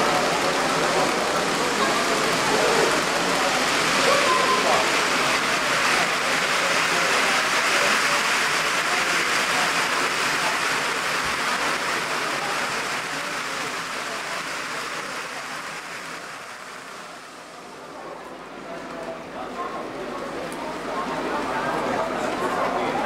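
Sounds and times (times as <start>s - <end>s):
model train rattling on track: 0.0s - 17.2s.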